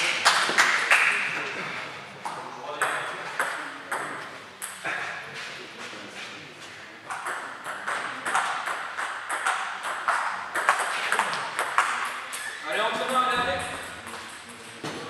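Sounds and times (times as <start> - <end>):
table tennis balls clicking: 7.1 - 14.6.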